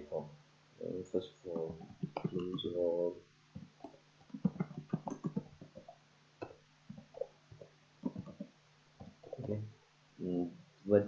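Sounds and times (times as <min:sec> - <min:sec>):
computer keyboard typing: 0:01.6 - 0:02.7, 0:04.3 - 0:05.9.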